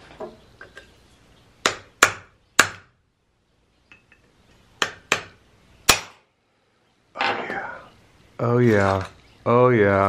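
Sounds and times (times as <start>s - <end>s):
hammer striking chisel: 1.6s - 2.9s, 4.8s - 6.2s.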